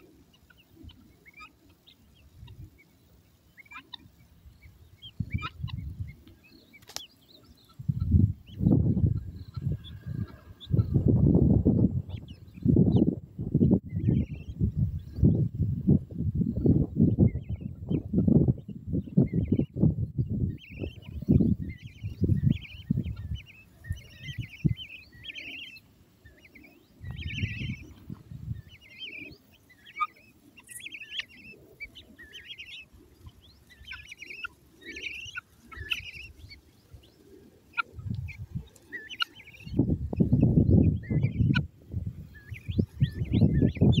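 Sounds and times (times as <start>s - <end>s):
guinea fowl chicks chirping: 0.0s - 44.0s
low rumbling microphone noise: 7.8s - 25.4s, 27.0s - 28.9s, 39.4s - 44.0s.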